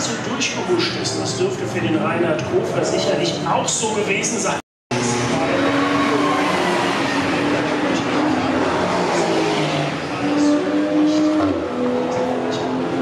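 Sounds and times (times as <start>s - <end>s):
race car engine driving past: 4.9s - 13.0s.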